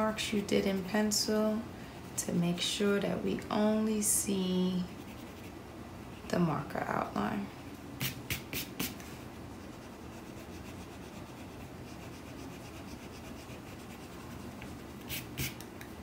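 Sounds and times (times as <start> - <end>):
eraser rubbing on paper: 8.0 - 15.6.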